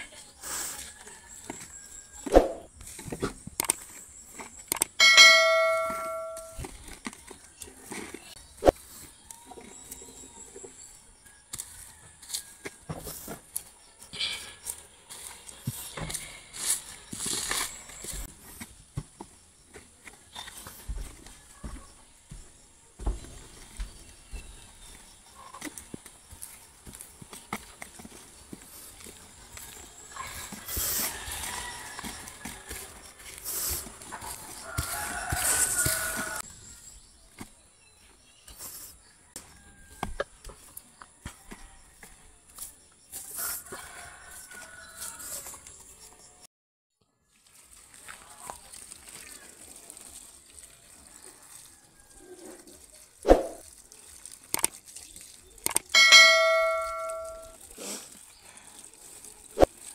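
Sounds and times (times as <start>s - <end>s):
hand tool scraping soil: 0.4s - 21.4s, 23.3s - 46.0s, 47.4s - 59.9s
bell ding: 5.0s - 6.6s, 56.0s - 57.6s
rooster crowing: 11.4s - 13.0s, 29.5s - 36.5s
sharp clicks: 55.6s - 55.9s.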